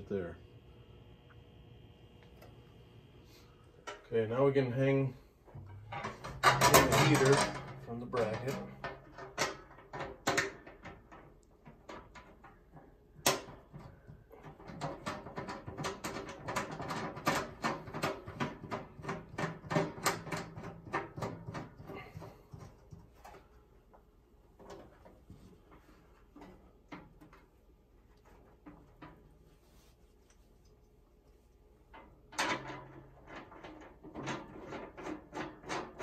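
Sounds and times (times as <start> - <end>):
sheet-metal clicks and rattles: 5.5 - 23.6, 31.9 - 36.0.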